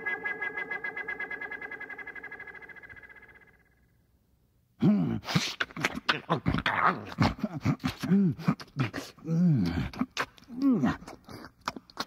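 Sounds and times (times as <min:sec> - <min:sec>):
creature-like voice calling: 0:00.0 - 0:03.6.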